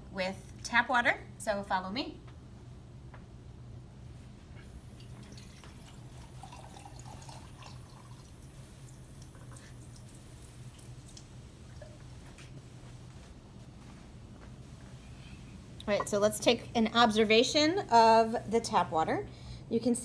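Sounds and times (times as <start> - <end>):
steady low hum: 0.0 - 20.0
tap water filling a glass: 4.8 - 11.0.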